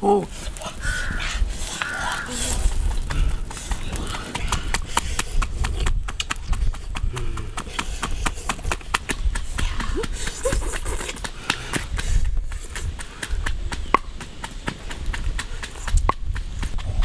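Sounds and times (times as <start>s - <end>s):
pestle pounding in mortar: 12.7s - 17.0s.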